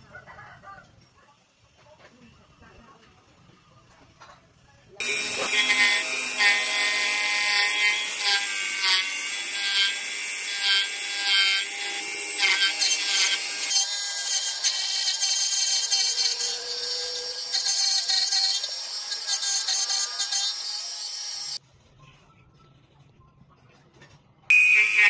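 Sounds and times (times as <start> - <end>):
lathe cutting metal: 5.0 - 21.6, 24.5 - 25.0.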